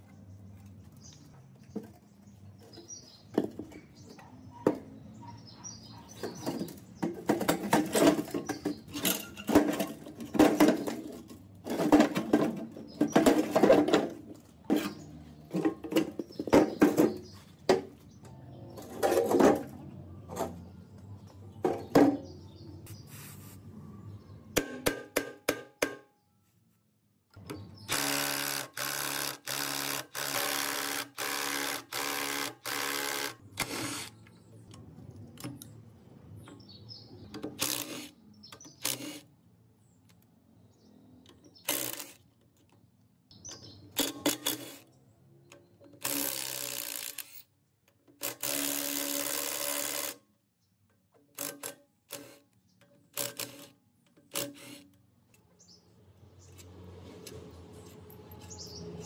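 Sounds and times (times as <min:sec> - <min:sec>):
power tool motor bursts: 0:27.8 - 0:34.2, 0:37.6 - 0:38.1, 0:41.7 - 0:42.2, 0:46.0 - 0:47.4, 0:48.2 - 0:50.2
metal parts clicking and knocking: 0:50.8 - 0:55.6.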